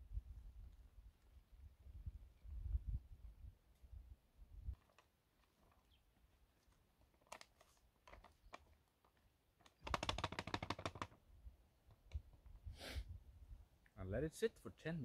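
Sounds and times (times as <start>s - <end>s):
plastic pouch being handled: 4.8s - 11.2s.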